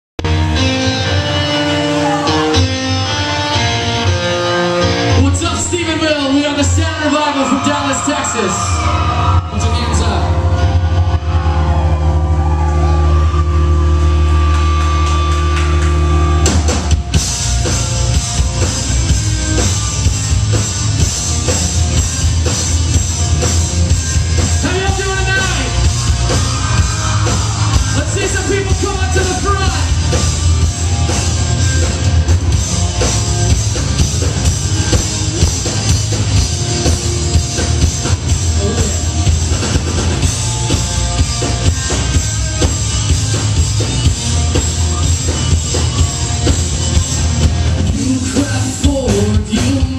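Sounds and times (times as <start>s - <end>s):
live rock band playing: 0.2s - 49.9s
person singing: 47.8s - 49.9s.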